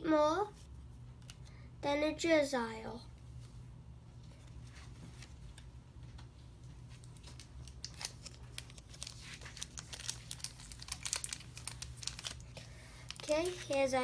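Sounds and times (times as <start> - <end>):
foil wrappers crinkling: 6.8 - 14.0.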